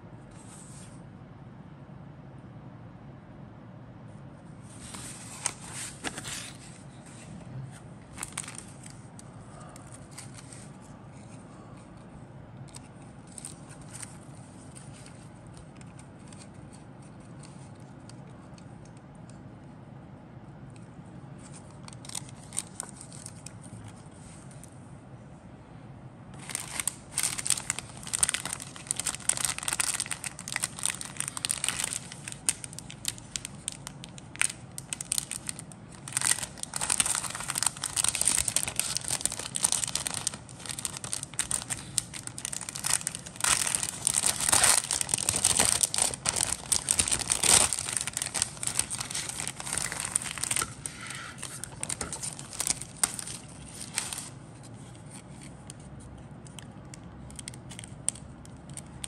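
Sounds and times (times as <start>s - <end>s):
plastic bags crinkling: 8.1s - 10.7s, 21.9s - 23.6s, 26.4s - 54.4s.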